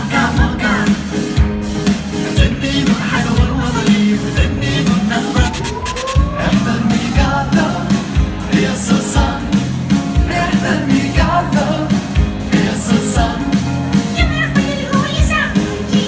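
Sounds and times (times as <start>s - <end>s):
cartoon theme song singing: 2.3s - 9.6s.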